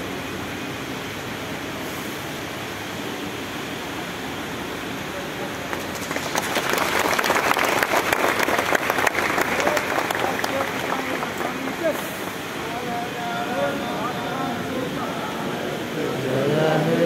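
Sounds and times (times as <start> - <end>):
steady hiss: 0.0 - 17.0
crowd clapping: 5.6 - 12.5.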